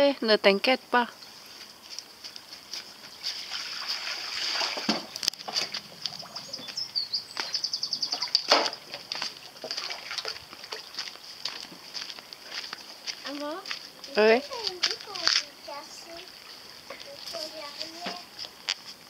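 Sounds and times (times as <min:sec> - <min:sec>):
water splashing and sloshing: 0:03.2 - 0:06.8, 0:08.0 - 0:12.1, 0:13.4 - 0:18.2.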